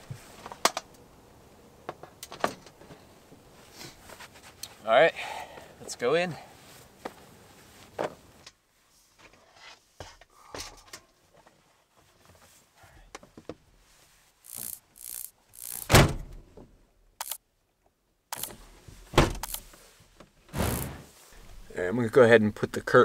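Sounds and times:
heavy thud: 0:15.8 - 0:16.4, 0:20.5 - 0:21.7.

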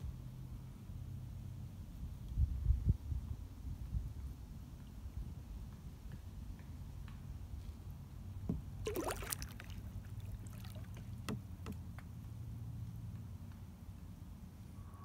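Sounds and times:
low steady rumble: 0:00.0 - 0:15.0
kayak paddle splashing: 0:08.5 - 0:11.9
water dripping: 0:08.9 - 0:11.8.

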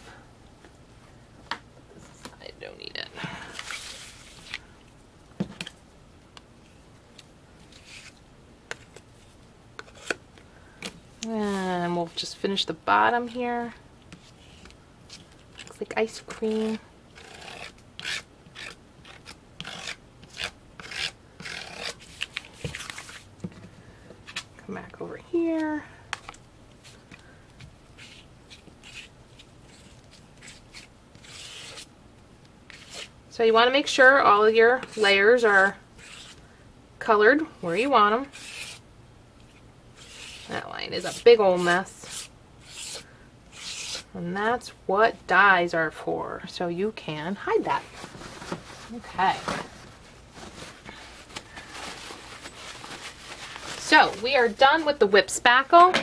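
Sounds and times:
palette knife scraping paste: 0:14.1 - 0:22.1, 0:28.0 - 0:29.1, 0:29.7 - 0:31.9, 0:32.7 - 0:33.1, 0:34.8 - 0:36.4, 0:38.2 - 0:38.8, 0:40.0 - 0:44.1.

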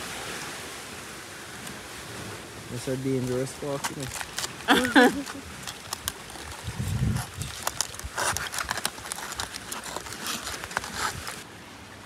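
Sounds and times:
aluminium foil crinkling: 0:03.0 - 0:11.4.

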